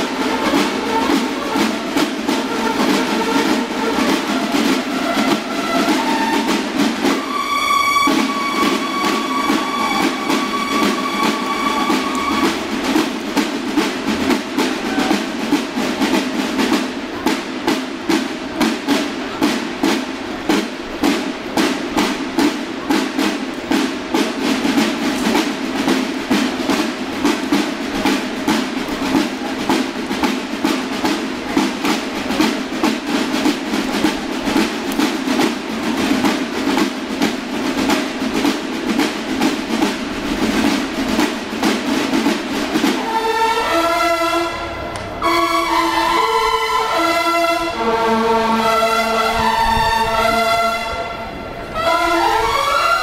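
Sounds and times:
held bugle note: 0.0s - 12.8s, 42.9s - 53.0s
snare drums marching cadence: 0.0s - 53.0s.

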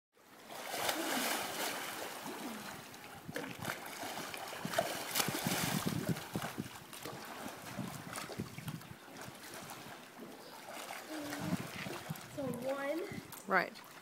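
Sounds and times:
water splashing in pool: 0.3s - 13.0s
quick small splashes: 0.5s - 2.5s, 3.3s - 8.5s.

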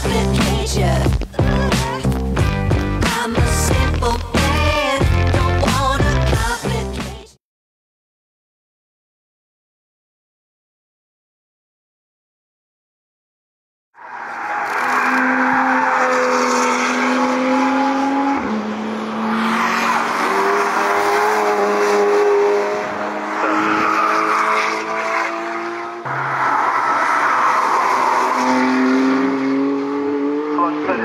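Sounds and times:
race cars driving past: 14.0s - 31.0s.

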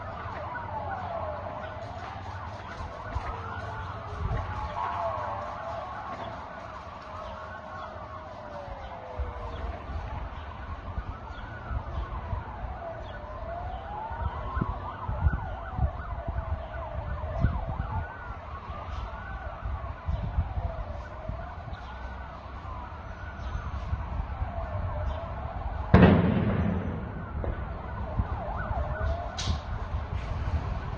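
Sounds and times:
sirens wailing: 0.0s - 30.9s.

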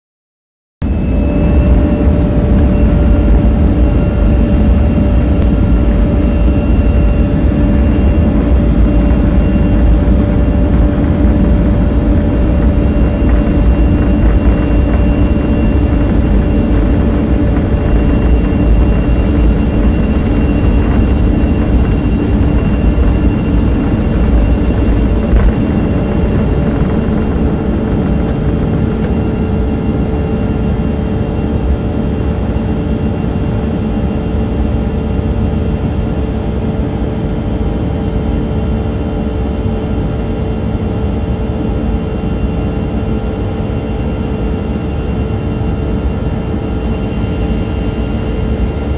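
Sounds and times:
wheels rumbling on runway: 0.8s - 33.7s
jet engines at takeoff: 0.8s - 48.9s.

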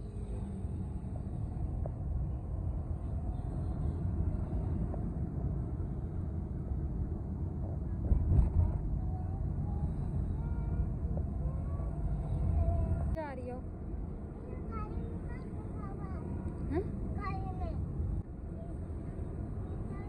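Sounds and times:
car engine and tyres rumbling: 0.0s - 20.0s.

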